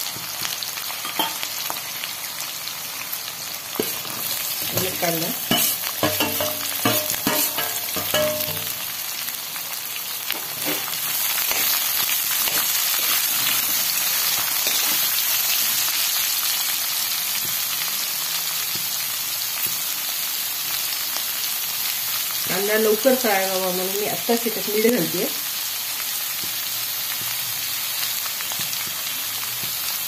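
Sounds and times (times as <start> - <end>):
food sizzling in hot oil: 0.0 - 30.0
steel spatula scraping: 3.8 - 8.8, 10.4 - 15.2.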